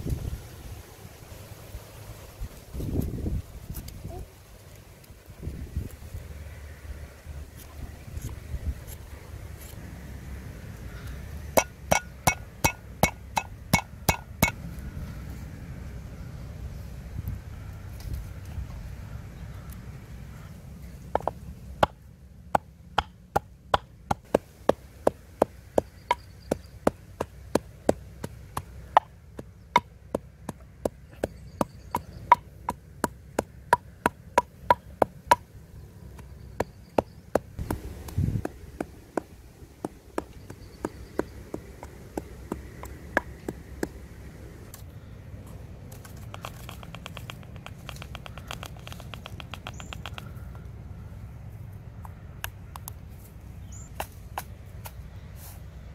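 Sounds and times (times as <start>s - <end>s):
pestle pounding in mortar: 11.6s - 14.6s.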